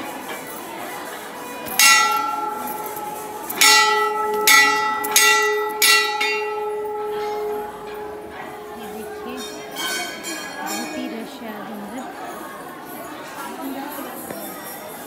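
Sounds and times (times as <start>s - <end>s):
temple bell ringing: 1.0s - 12.6s.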